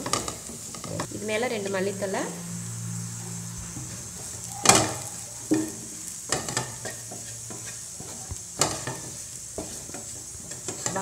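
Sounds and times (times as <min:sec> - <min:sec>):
faint oil sizzle: 0:00.0 - 0:11.0
spatula scraping frying pan: 0:02.6 - 0:11.0.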